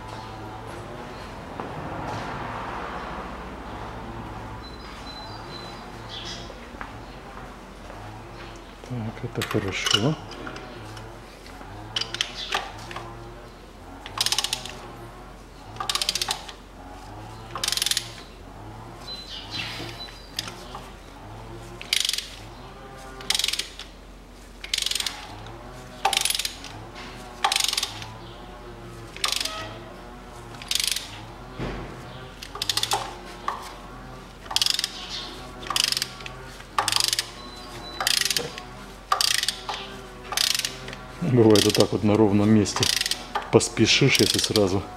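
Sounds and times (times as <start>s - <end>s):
ratchet wrench clicking: 12.0s - 12.7s, 14.0s - 14.8s, 15.8s - 16.6s, 17.6s - 18.2s, 21.8s - 22.4s, 23.2s - 23.9s, 24.6s - 25.4s, 26.0s - 26.7s, 27.4s - 28.1s, 29.2s - 29.7s, 30.5s - 31.2s, 32.4s - 33.6s, 34.4s - 41.9s, 42.7s - 43.5s, 44.1s - 44.7s.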